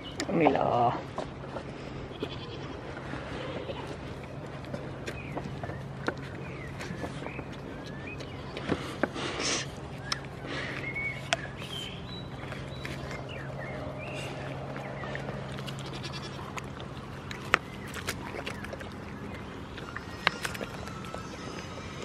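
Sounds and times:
goats bleating: 2.1 - 3.9, 15.7 - 16.6
sharp biting clicks: 10.0 - 13.7, 14.4 - 22.0.

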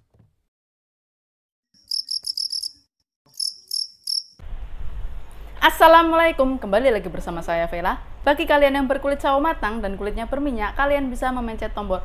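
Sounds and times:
cricket chirping: 1.8 - 4.4
woman speaking: 5.6 - 12.0.

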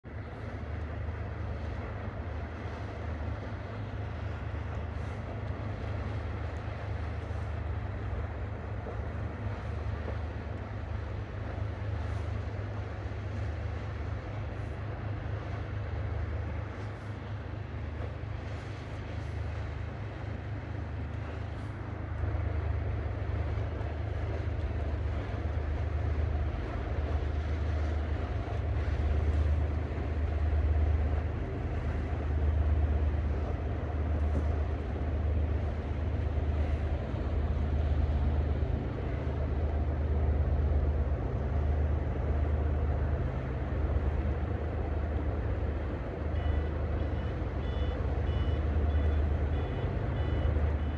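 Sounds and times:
diesel engines droning: 0.0 - 50.9.

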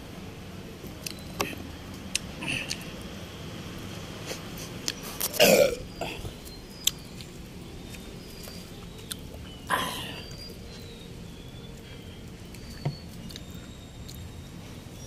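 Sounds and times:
man belching: 5.4 - 5.8.

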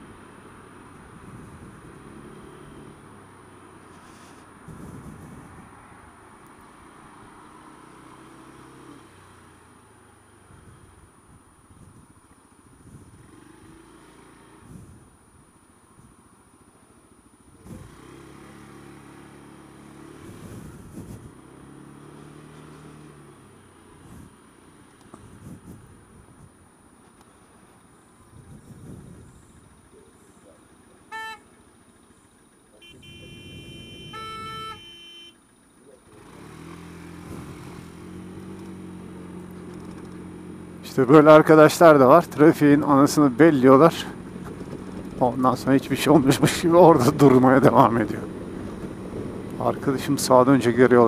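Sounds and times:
louder car horn blown briefly: 31.1 - 31.4, 32.8 - 35.4
car horn held: 31.1 - 31.5, 32.8 - 35.4
scooter engine running: 32.7 - 37.0
motor scooter engine pulling away: 36.0 - 40.8, 44.0 - 49.7.

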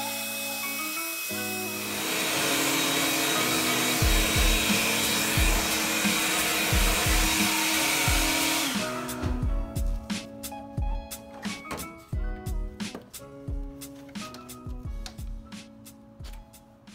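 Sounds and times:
handheld blower rushing air: 0.0 - 9.4
background music with drum beat: 3.9 - 16.9.

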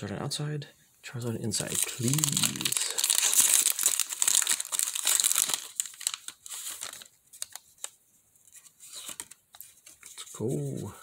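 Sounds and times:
foil wrapper crinkling: 1.6 - 10.0.

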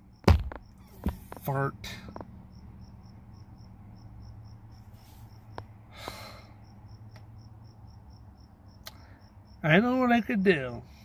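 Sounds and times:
cricket chirping: 0.0 - 11.0.

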